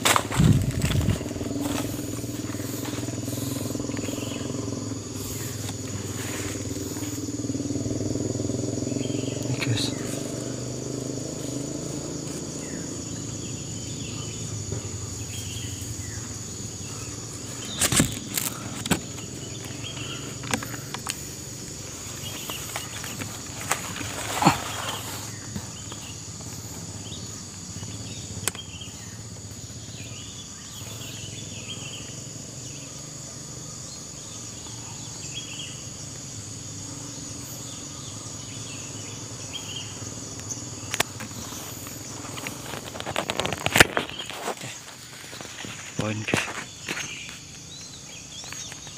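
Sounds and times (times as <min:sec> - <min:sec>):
sharp cracks and knocks: 0:00.0 - 0:03.1, 0:17.6 - 0:19.8, 0:22.3 - 0:26.7, 0:28.4 - 0:28.7, 0:40.9 - 0:48.9
high whine: 0:00.0 - 0:29.0
forest insects droning: 0:00.0 - 0:48.9.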